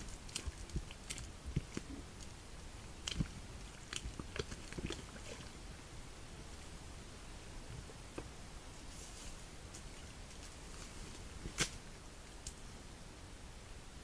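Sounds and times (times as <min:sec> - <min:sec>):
mud squelching and slapping: 0:00.0 - 0:05.6.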